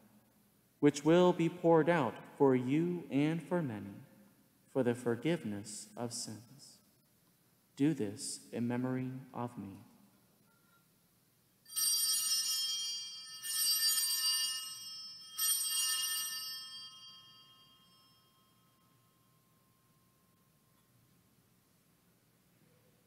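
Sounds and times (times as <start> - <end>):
altar bells ringing: 11.6 - 20.5.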